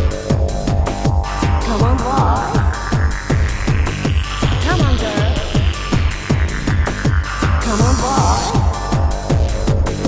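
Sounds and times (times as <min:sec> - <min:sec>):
electronic dance music: 0:01.0 - 0:10.0.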